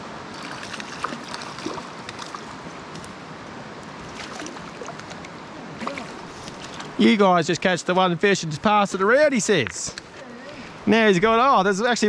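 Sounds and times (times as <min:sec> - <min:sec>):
water gurgles and splashes: 0:00.0 - 0:03.1, 0:03.9 - 0:07.0
stream running over rocks: 0:00.0 - 0:12.0.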